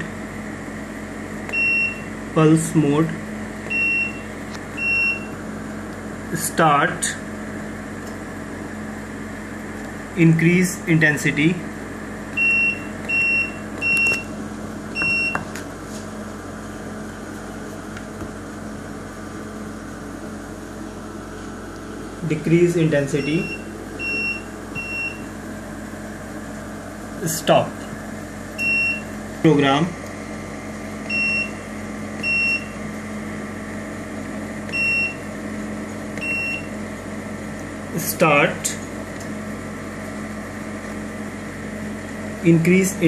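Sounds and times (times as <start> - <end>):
machine low electrical hum: 0.0 - 43.0
keypad beep: 1.5 - 2.1, 3.7 - 4.2, 12.4 - 14.3, 15.0 - 15.4, 23.2 - 25.2, 34.7 - 35.2, 36.2 - 36.7.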